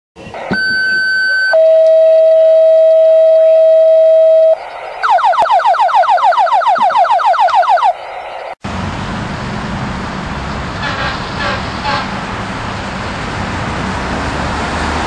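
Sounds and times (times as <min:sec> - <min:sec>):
radio alert tone: 0:00.2 - 0:08.6
street traffic: 0:07.3 - 0:15.0.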